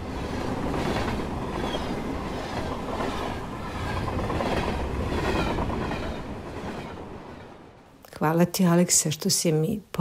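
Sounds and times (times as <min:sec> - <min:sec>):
train rumbling on rails: 0:00.0 - 0:07.9.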